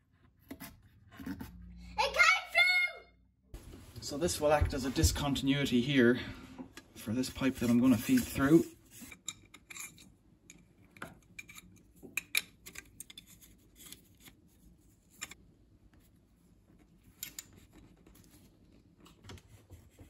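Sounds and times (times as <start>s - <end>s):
metal fitting clicks and scrapes: 9.0s - 14.3s.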